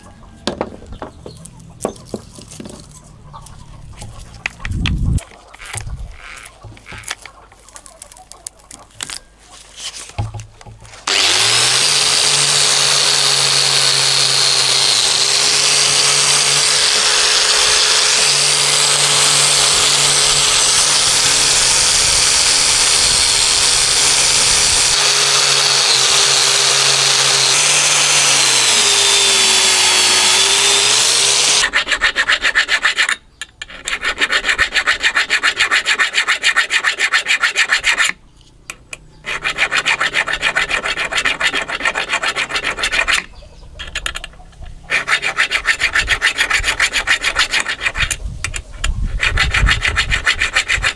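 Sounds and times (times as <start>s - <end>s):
angle grinder with wire brush: 10.9s - 38.2s, 39.2s - 50.9s
hand file strokes on metal: 11.0s - 38.2s, 39.2s - 43.3s, 44.9s - 50.9s.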